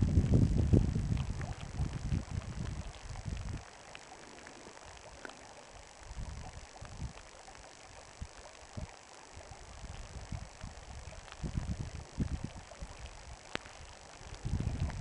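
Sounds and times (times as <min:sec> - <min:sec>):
wind buffeting microphone: 0:00.0 - 0:03.7, 0:06.0 - 0:07.2, 0:08.2 - 0:15.0
stream running over stones: 0:00.0 - 0:15.0.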